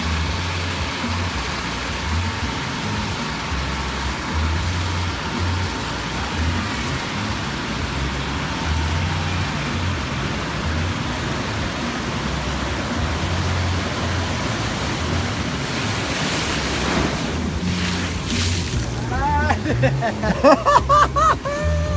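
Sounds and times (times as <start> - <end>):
wave breaking: 10.5 - 21.9.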